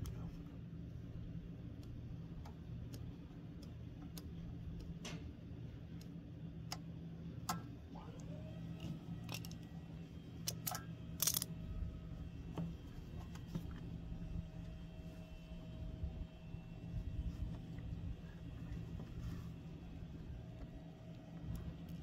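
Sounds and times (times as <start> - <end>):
steady low hum: 0.0 - 22.0
tools and parts clicking: 9.2 - 9.7, 10.4 - 11.5.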